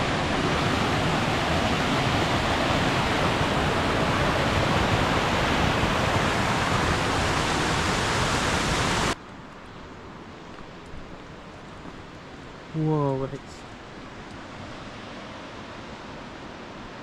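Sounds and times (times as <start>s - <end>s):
whitewater rushing down channel: 0.0s - 9.2s.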